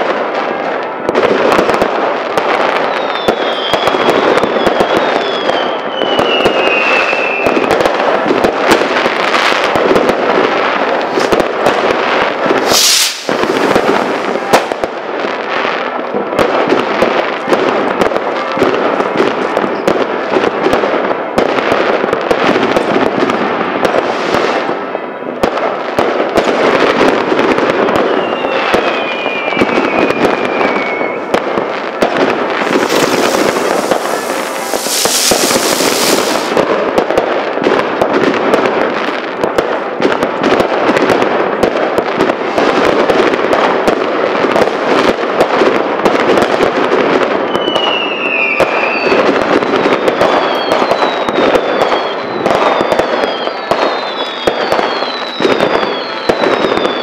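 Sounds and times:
firecrackers crackling: 0:00.0 - 0:57.0
firework whistles gliding down: 0:02.6 - 0:07.9, 0:12.5 - 0:14.8, 0:27.6 - 0:31.4, 0:32.5 - 0:36.6, 0:47.4 - 0:57.0
high hiss: 0:12.6 - 0:14.2, 0:32.6 - 0:36.5.

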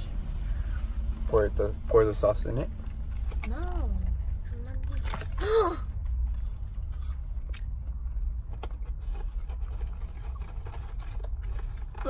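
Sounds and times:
car idling rumble: 0:00.0 - 0:12.0
food handling clicks and rustles: 0:02.8 - 0:12.0.

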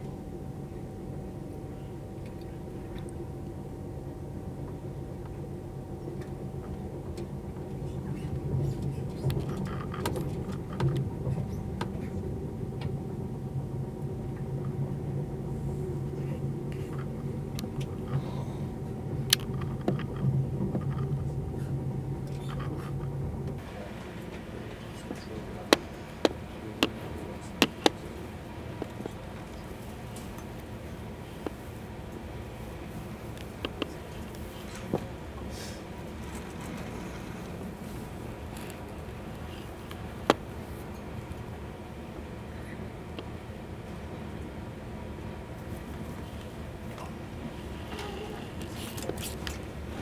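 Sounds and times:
train rumble inside coach: 0:00.0 - 0:50.0.

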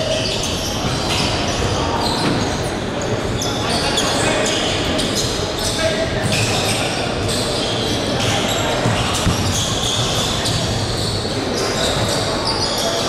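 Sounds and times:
voices in a hall: 0:00.0 - 0:13.0
basketball bouncing on hardwood: 0:08.8 - 0:10.1.

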